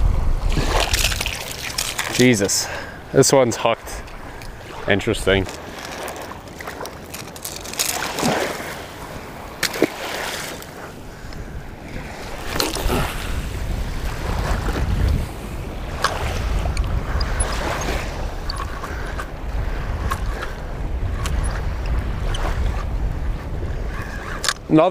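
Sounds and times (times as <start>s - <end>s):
wind buffeting microphone: 0.0s - 24.9s
small surf lapping: 0.4s - 24.9s
fishing gear clicks and knocks: 0.7s - 2.6s, 4.0s - 11.4s, 12.4s - 13.3s, 15.9s - 19.4s, 20.0s - 20.6s, 21.2s - 24.7s.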